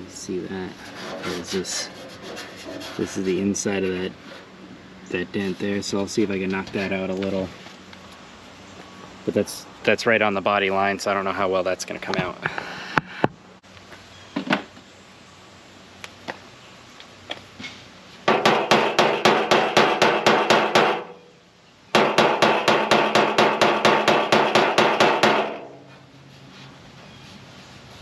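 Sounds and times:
hammer striking sheet metal: 18.3 - 21.2, 22.0 - 25.8.

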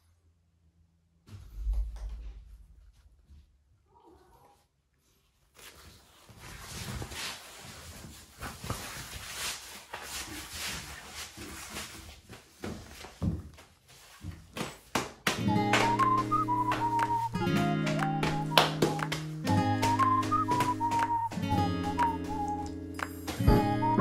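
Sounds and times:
padded fabric rustling: 5.1 - 14.8
shuffling footsteps: 5.5 - 24.0.

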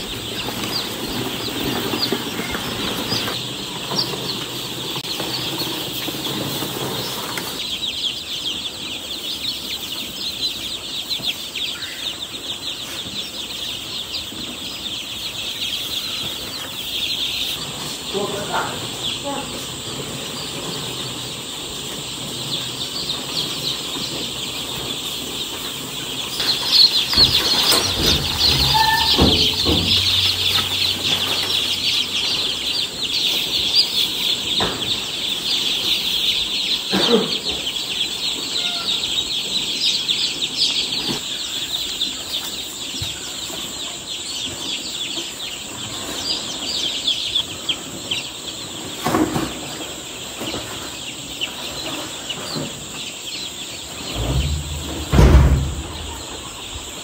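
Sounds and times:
chicks peeping: 0.0 - 57.0.

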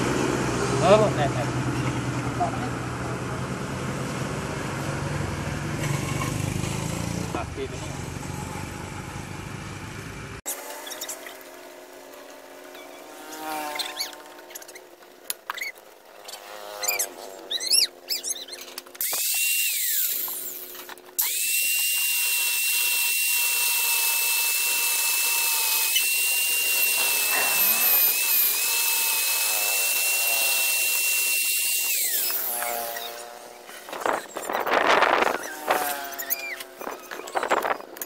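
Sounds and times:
angle grinder cutting plastic: 10.5 - 38.0.

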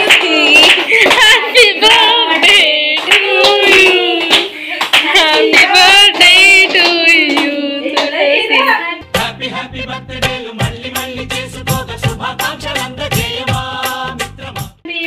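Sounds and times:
group clapping: 0.0 - 9.4
voices singing birthday song: 0.0 - 15.0
recorded music with bass line: 9.0 - 14.8.

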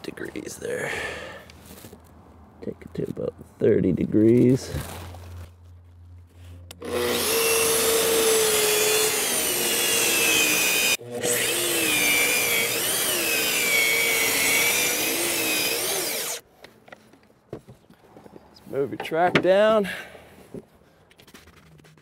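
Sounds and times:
circular saw cutting wood: 6.8 - 16.4.

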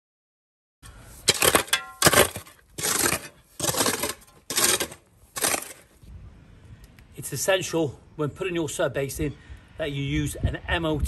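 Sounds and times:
spade crunching through gravel: 1.0 - 6.0.

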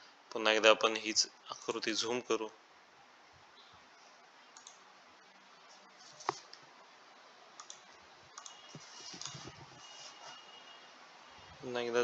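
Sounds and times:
computer mouse clicks: 4.6 - 4.8, 7.6 - 7.8, 8.4 - 9.5.

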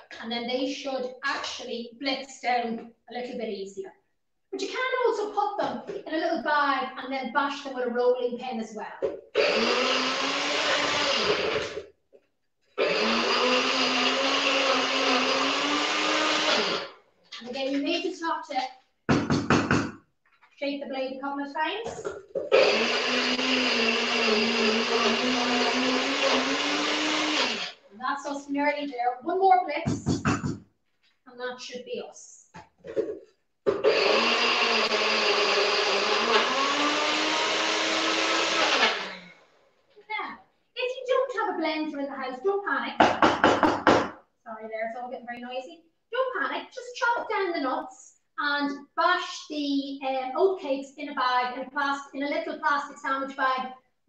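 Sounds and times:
blender grinding: 9.4 - 11.9, 12.7 - 17.0, 22.0 - 27.8, 33.7 - 39.6.

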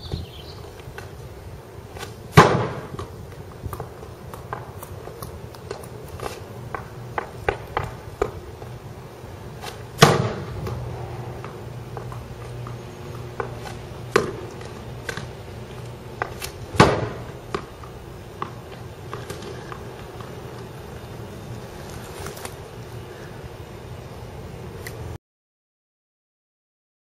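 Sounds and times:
loud cracks of hockey shots: 2.0 - 3.1, 9.6 - 10.9, 13.4 - 15.3, 16.2 - 17.8.

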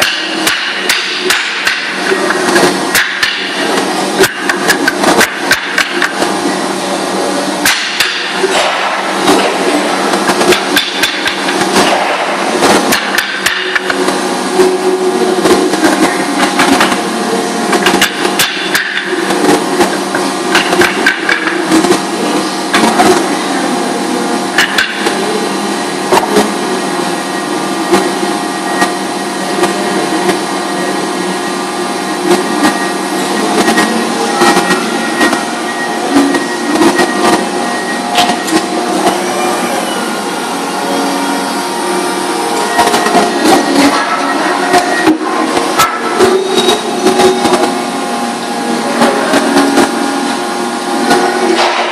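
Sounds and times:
machinery drone: 0.0 - 51.9.

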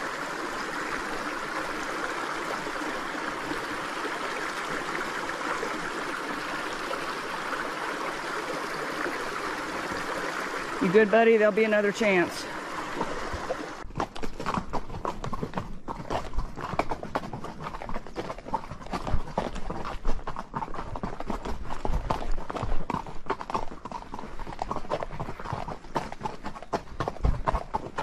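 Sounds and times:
horse hooves clopping: 0.0 - 28.0.

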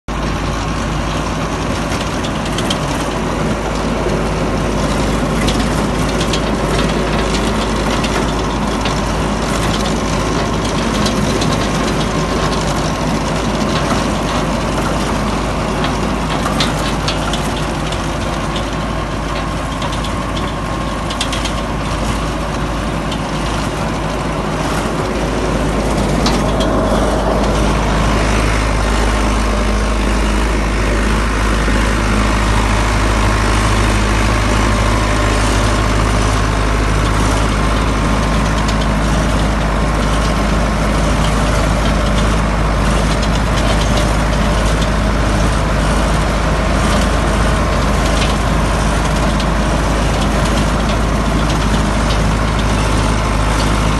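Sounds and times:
tractor engine running: 0.0 - 53.9
rotor blades churning soil: 0.1 - 53.9
sharp clicks and knocks: 0.2 - 29.9, 31.3 - 53.9.

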